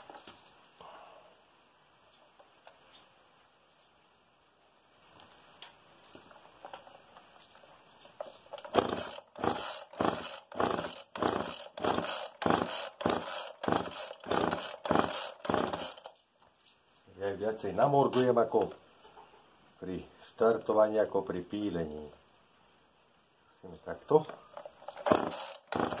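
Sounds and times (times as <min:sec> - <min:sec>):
chainsaw starter cord tugs: 0:08.2 - 0:16.2, 0:24.1 - 0:26.0.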